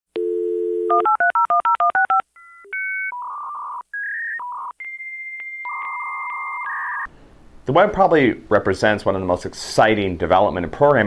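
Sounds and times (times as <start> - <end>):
dial tone: 0.2 - 7.1.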